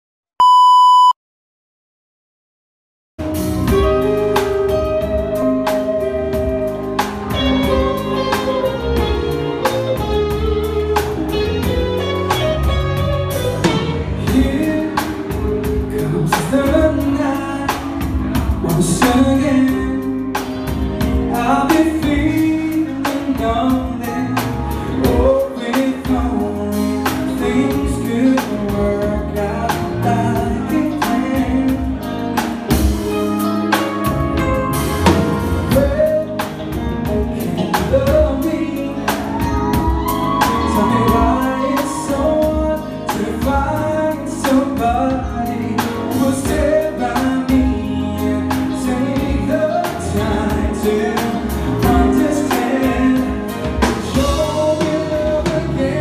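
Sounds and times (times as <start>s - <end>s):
live band playing: 3.2s - 56.0s
man singing: 7.3s - 32.9s, 35.0s - 56.0s.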